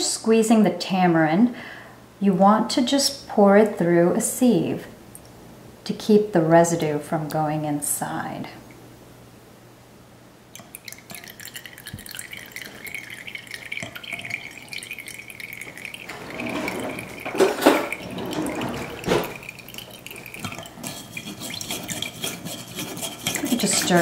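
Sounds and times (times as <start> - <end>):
water trickling through sieve: 10.6 - 24.0.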